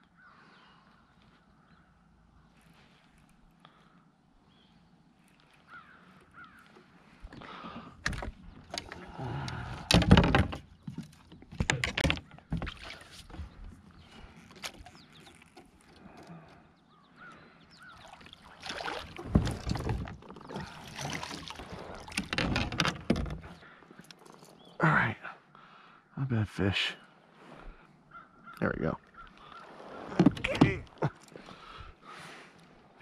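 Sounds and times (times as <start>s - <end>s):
gear knocking in a kayak: 7.2s - 16.1s, 18.8s - 24.5s, 30.1s - 31.2s.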